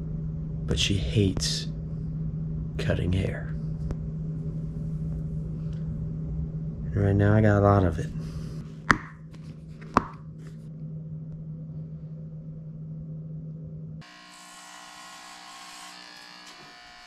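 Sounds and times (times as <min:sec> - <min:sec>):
steady low hum: 0:00.0 - 0:14.4
electric hair clippers buzzing: 0:14.0 - 0:17.0.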